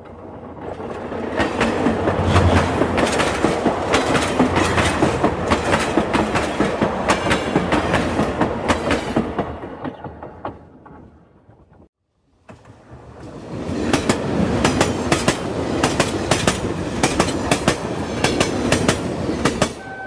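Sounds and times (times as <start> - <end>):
train wheels clacking on rails: 0.0 - 11.1, 12.5 - 20.0.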